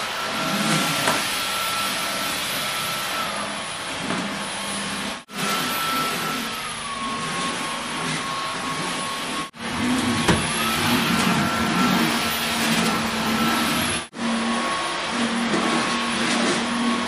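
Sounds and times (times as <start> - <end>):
vacuum cleaner running: 0.0 - 17.0.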